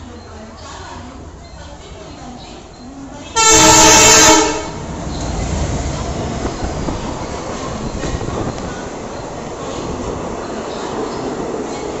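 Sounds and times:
train coaches rumbling past: 2.6s - 12.0s
locomotive horn blast: 3.4s - 4.9s.

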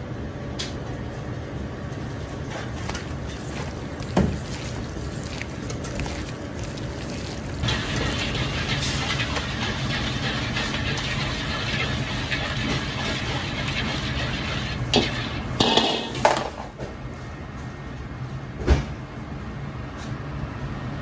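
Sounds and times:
wok burner and exhaust roar: 0.0s - 21.0s
sauce sizzling in hot wok: 5.9s - 16.2s
metal ladle knocking on wok: 15.0s - 16.4s.

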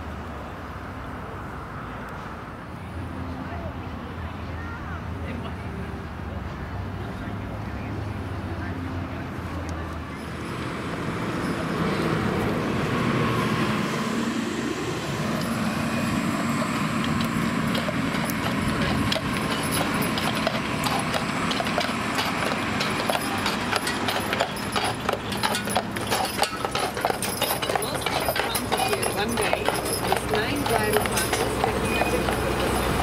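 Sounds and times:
bus driving past: 0.0s - 33.0s
horse hooves clip-clopping on asphalt: 15.2s - 33.0s.

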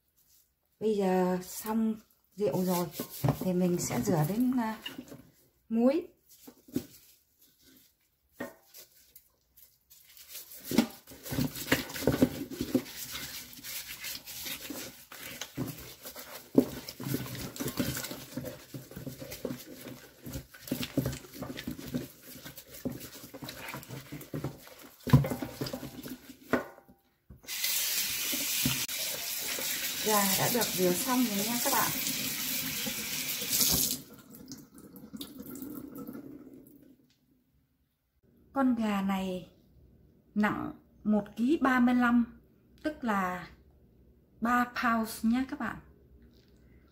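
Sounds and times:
hands rubbing wet chicken skin: 2.4s - 5.0s, 6.2s - 26.5s
tap water running into sink: 27.4s - 36.8s.

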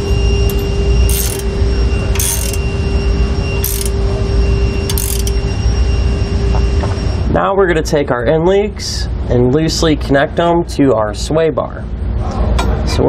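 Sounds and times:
low hum: 0.0s - 7.4s
ratchet wrench clicking: 0.5s - 1.5s, 2.2s - 2.6s, 3.6s - 4.0s, 4.9s - 5.4s.

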